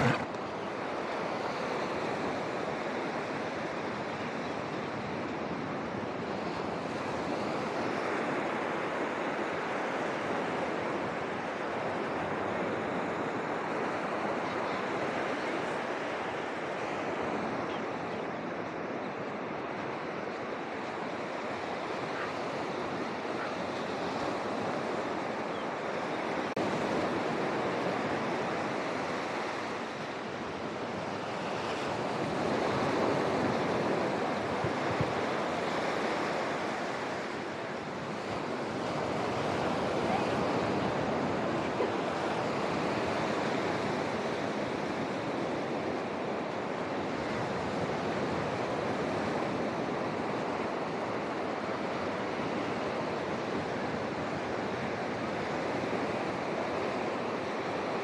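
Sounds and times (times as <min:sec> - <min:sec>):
surf breaking on beach: 0:00.0 - 0:03.4.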